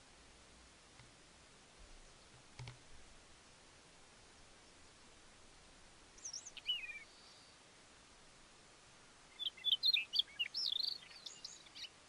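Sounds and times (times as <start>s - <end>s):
faint steady hiss: 0.0s - 12.0s
songbird singing: 1.8s - 7.8s, 8.4s - 12.0s.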